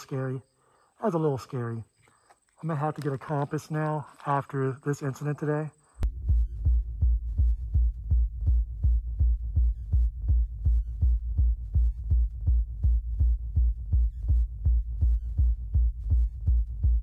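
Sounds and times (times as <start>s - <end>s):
electronic music with heavy beat: 6.0s - 17.0s.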